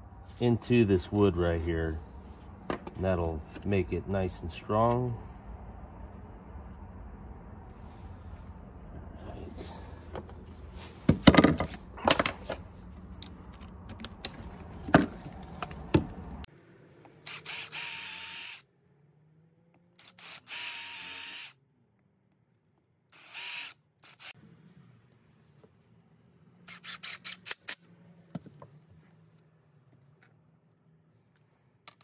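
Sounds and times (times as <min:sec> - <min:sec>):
knocks and clatters of handling: 0:10.1 - 0:16.2
cordless drill whining: 0:17.3 - 0:18.6, 0:20.0 - 0:21.6, 0:23.2 - 0:24.3.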